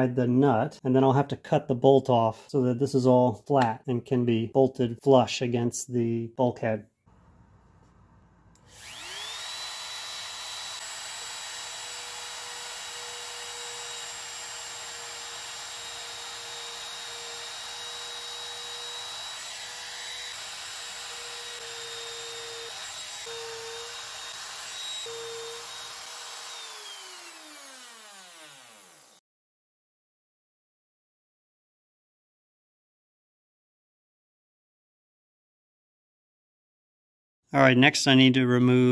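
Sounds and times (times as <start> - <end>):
trim router whining: 8.6 - 29.2.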